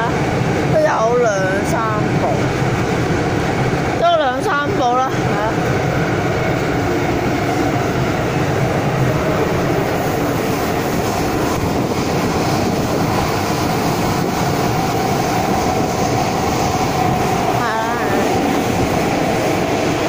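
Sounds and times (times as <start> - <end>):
train running rumble: 0.0 - 20.0.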